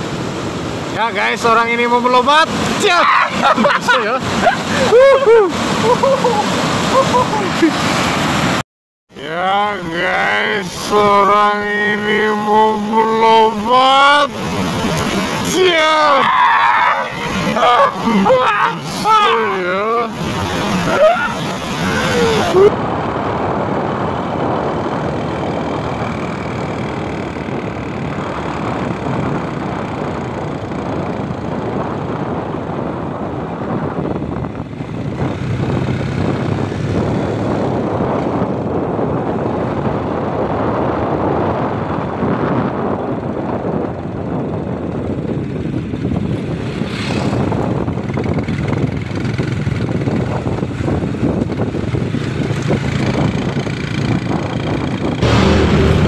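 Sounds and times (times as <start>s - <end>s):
even rushing noise: 9.2s - 44.5s, 45.9s - 56.0s
motorcycle engine running: 19.4s - 56.0s.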